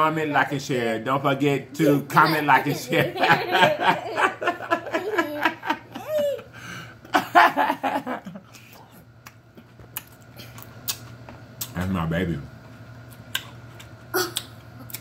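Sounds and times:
man and girl laughing: 2.1s - 8.7s.

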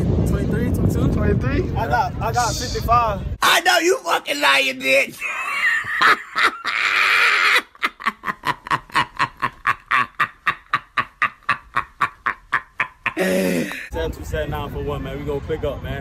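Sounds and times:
woman screaming: 6.7s - 7.7s.

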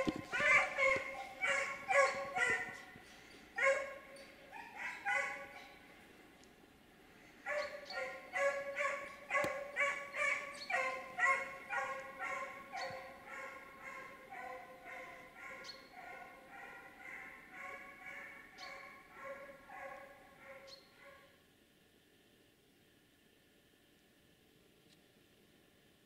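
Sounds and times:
hunting dog baying: 0.0s - 3.0s, 3.6s - 5.8s, 7.4s - 21.3s.

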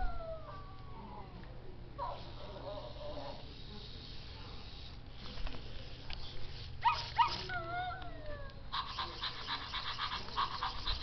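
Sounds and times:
toy dog yips: 6.8s - 8.0s, 8.8s - 11.0s
toy dog whimper: 6.9s - 11.0s
fast pulsing sound: 8.7s - 11.0s.

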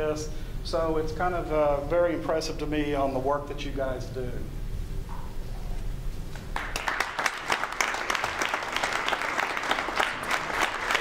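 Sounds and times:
audience clapping: 6.4s - 11.0s.

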